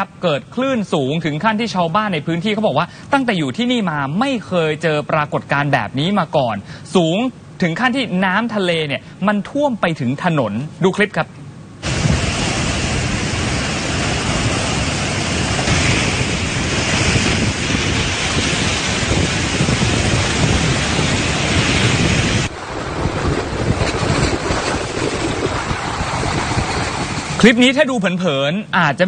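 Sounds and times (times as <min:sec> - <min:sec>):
wind buffeting microphone: 0:11.8 - 0:28.2
storm surf crashing against seawall: 0:11.8 - 0:29.0.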